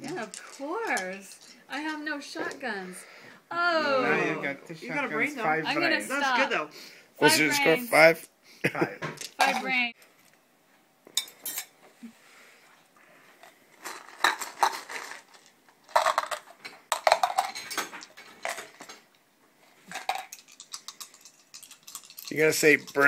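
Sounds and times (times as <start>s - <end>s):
plastic dice rattling in hands: 19.9s - 23.0s.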